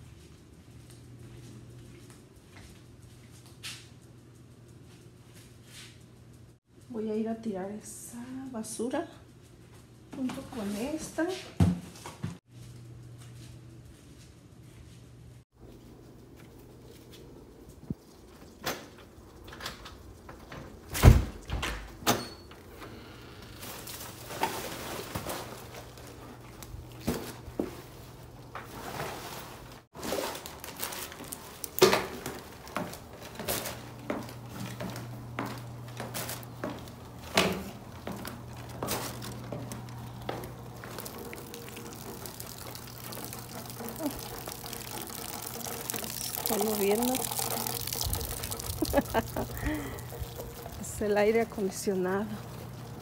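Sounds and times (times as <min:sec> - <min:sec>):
footsteps: 0:23.4 - 0:53.0.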